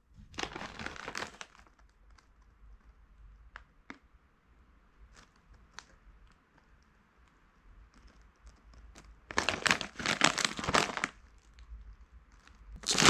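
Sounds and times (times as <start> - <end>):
plastic snack bag crinkling: 0.3 - 2.3, 9.3 - 11.5, 12.4 - 13.0.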